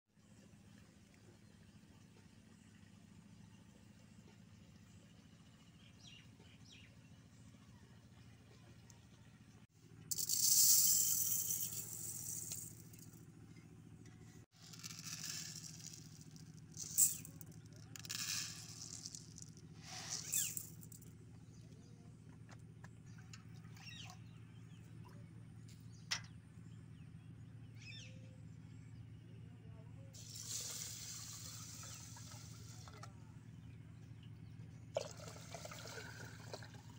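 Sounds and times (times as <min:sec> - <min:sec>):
dry lentils poured into metal pot: 0:10.1 - 0:13.2, 0:14.5 - 0:21.0, 0:30.2 - 0:32.8.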